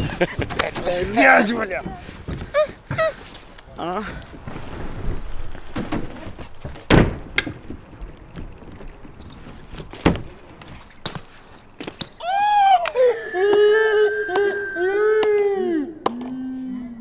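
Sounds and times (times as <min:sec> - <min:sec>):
wheels thudding on ground: 0:00.0 - 0:12.3
bike tyres rolling on concrete: 0:00.0 - 0:13.0
high wavering pitched tone: 0:13.0 - 0:16.0.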